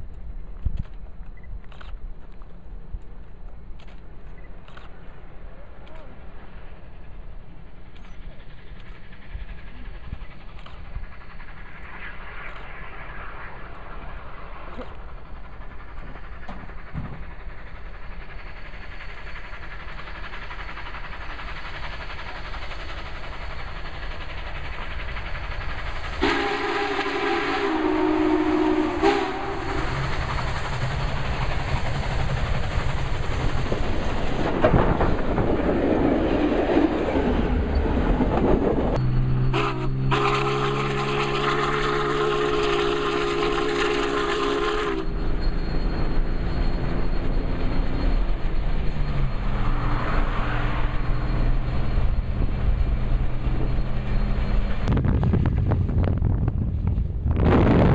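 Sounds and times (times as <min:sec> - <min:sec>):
train wheels clattering on rails: 0:00.0 - 0:57.1
steam whistle blasts: 0:26.2 - 0:30.0, 0:39.1 - 0:45.6.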